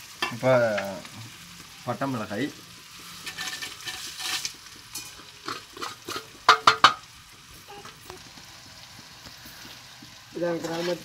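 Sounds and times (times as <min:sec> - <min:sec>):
chillies sizzling in hot oil: 0:00.0 - 0:11.0
metal spoon scraping and stirring: 0:03.2 - 0:06.7.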